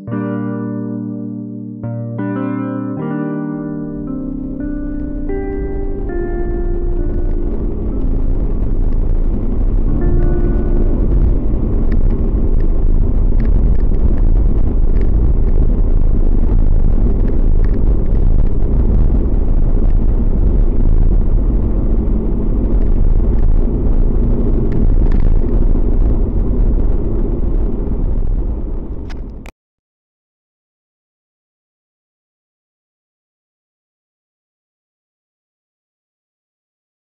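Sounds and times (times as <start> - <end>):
car road and engine rumble: 4.0 - 29.5.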